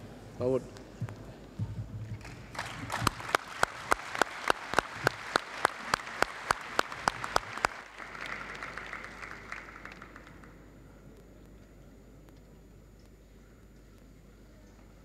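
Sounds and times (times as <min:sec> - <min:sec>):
loud evenly spaced claps: 0:02.0 - 0:10.8
audience applauding: 0:02.2 - 0:10.6.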